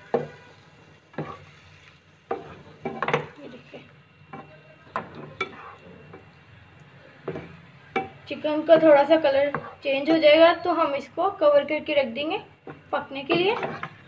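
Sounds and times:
spatula scraping frying pan: 0.0 - 3.7, 4.3 - 6.3, 8.6 - 10.0, 12.6 - 14.0
chicken sizzling: 0.0 - 11.0.

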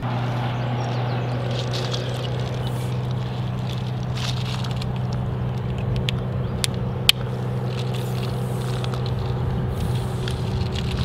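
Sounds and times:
low motor hum: 0.0 - 11.0.

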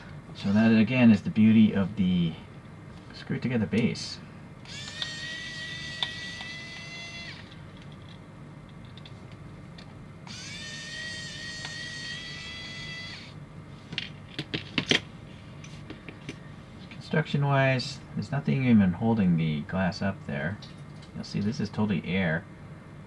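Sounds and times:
electric screwdriver motor whine: 4.6 - 7.6, 10.3 - 13.4.

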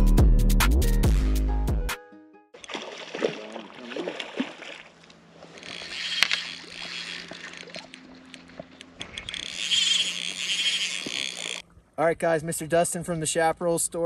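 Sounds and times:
fish splashing in water: 2.6 - 11.6
small clicks: 5.0 - 11.6.

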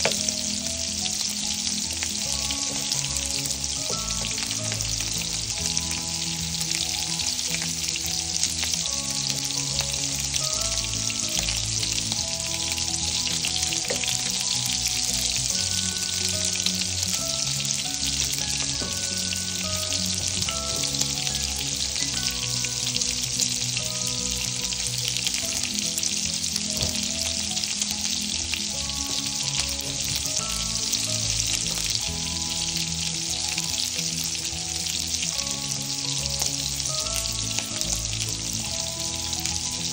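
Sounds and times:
sausage sizzling in a pan: 0.0 - 39.9
soft background music: 0.0 - 39.9.

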